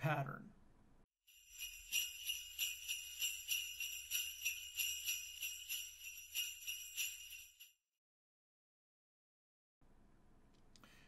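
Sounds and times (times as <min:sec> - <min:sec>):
jingle bells shaken: 0:01.3 - 0:07.8.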